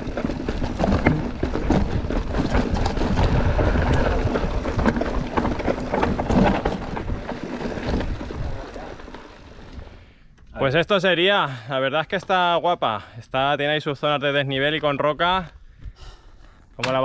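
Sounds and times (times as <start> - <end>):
bike clattering over rocks: 0.0 - 10.0
wind buffeting microphone: 0.0 - 10.0.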